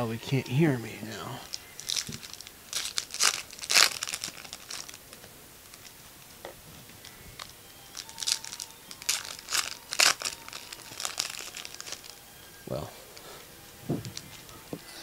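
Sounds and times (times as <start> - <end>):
card wrappers crinkling and tearing: 1.2 - 6.0, 6.9 - 12.2, 13.1 - 14.6.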